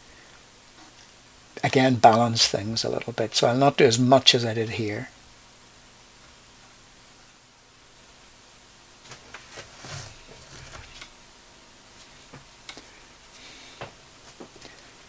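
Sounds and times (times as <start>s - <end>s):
faint hiss: 0.0s - 15.0s
soft scrubbing: 9.4s - 11.0s.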